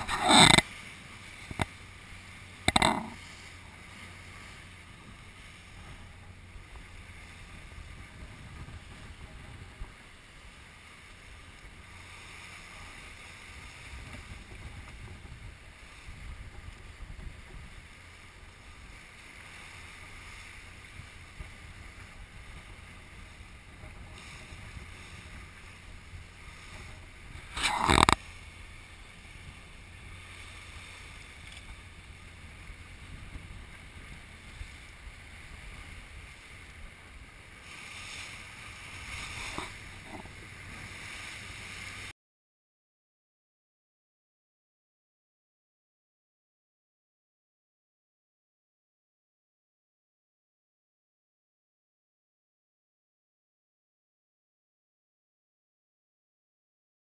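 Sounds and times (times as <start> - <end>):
boat rumble and hiss: 0.0 - 42.1.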